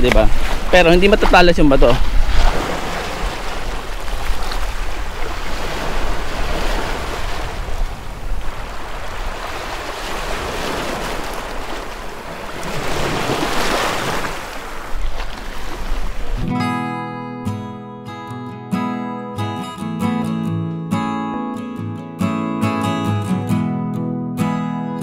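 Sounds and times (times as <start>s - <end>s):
waves washing over pebbles: 0.0s - 16.2s
wind rumbling on microphone: 0.0s - 16.5s.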